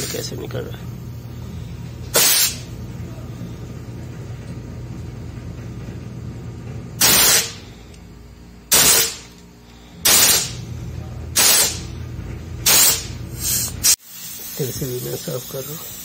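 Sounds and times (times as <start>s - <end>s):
gas hissing from a pipe: 0.0s - 2.8s, 7.0s - 8.0s, 8.7s - 10.6s, 11.4s - 11.9s, 12.6s - 16.0s
steady low hum: 0.0s - 16.0s.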